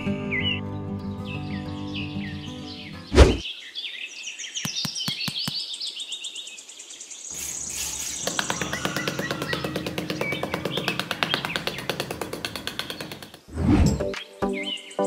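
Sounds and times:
music: 0.0 - 3.1, 13.9 - 15.0
small birds chirping: 0.0 - 15.0
sharp clicks: 4.6 - 5.6, 8.0 - 13.5
trowel scraping sand: 7.3 - 8.9.

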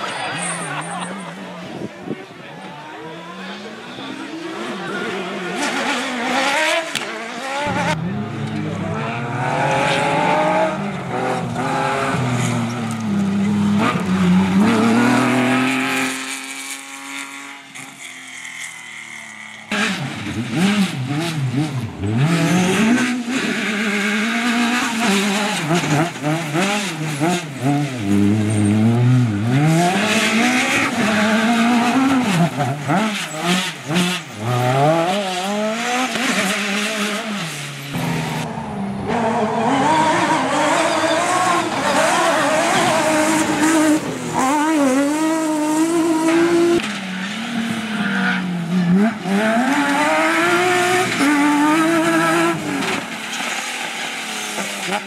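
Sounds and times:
rally car engines revving: 0.0 - 55.0.

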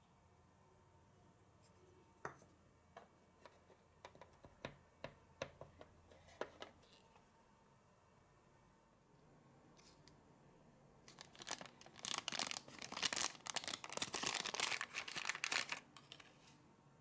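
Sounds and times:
plastic sachet crinkling and tearing: 11.1 - 16.3.

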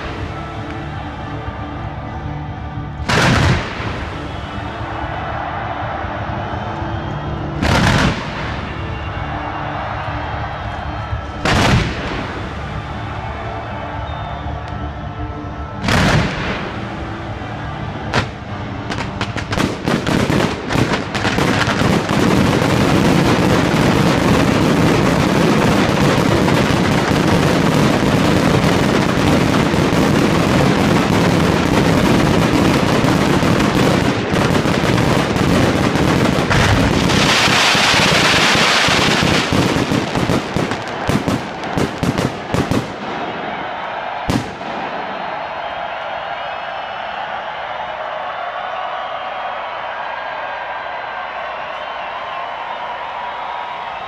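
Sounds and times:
fireworks bursting: 3.0 - 4.6, 7.6 - 9.9, 11.4 - 13.4, 15.8 - 17.2, 18.0 - 45.7
fireworks crackle: 18.1 - 43.3.

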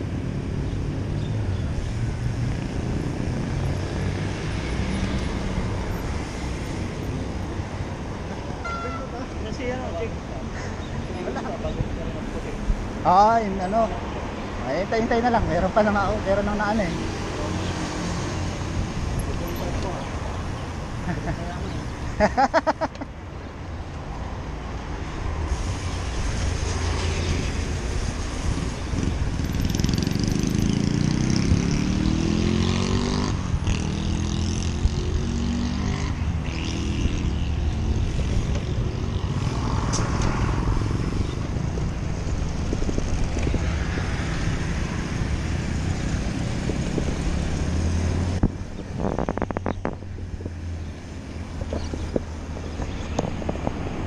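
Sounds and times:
road traffic: 0.0 - 54.0
wind noise: 25.3 - 32.4, 36.2 - 54.0
vehicle engine passing: 26.3 - 51.2.

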